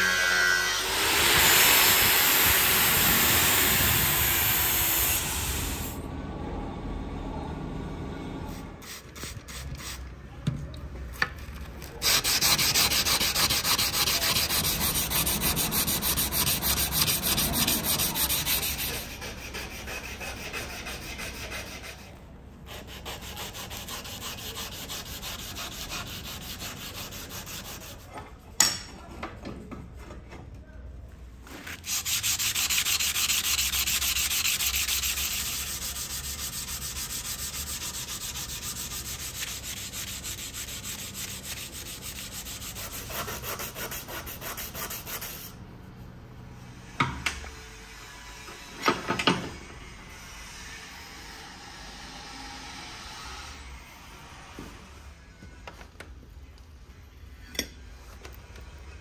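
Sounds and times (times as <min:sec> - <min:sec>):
sandpaper rubbing wet steel: 0:12.0 - 0:28.1, 0:31.7 - 0:45.6.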